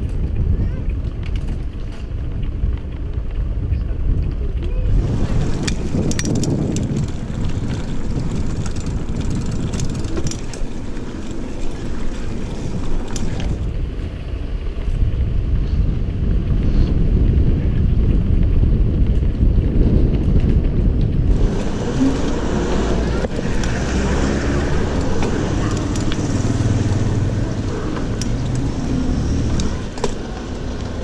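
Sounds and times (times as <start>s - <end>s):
wind rushing over microphone: 0.0s - 31.0s
clicks and rattles: 4.1s - 13.6s, 21.3s - 31.0s.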